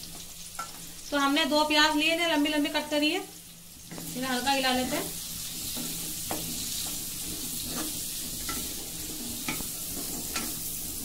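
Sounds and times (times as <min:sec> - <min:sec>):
onions sizzling in hot oil: 0:00.0 - 0:11.0
wooden spatula scraping a pan: 0:03.8 - 0:11.0.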